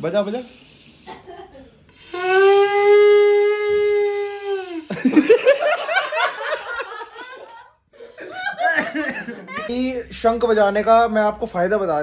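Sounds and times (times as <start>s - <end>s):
conch shell blown: 2.0s - 4.9s
people laughing: 4.9s - 9.7s.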